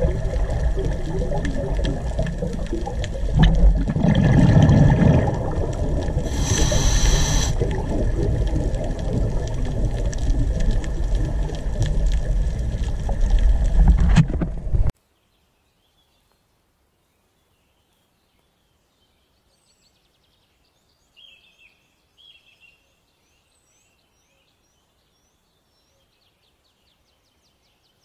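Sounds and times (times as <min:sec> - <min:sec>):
bubbling underwater: 0:00.0 - 0:14.9
low underwater rumble: 0:00.0 - 0:14.9
hiss: 0:06.2 - 0:07.7.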